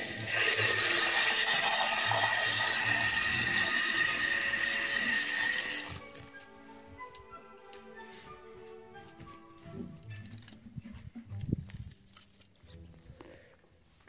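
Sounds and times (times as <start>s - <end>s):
water rushing through pipe: 0.0s - 6.0s.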